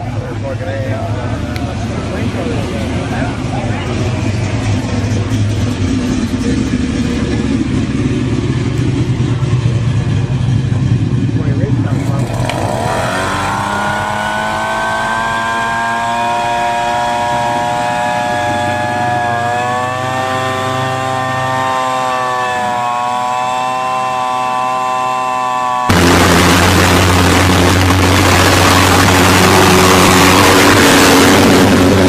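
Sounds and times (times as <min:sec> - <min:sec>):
small engine running roughly: 0:00.0 - 0:32.0
leaf blower whining: 0:12.1 - 0:32.0.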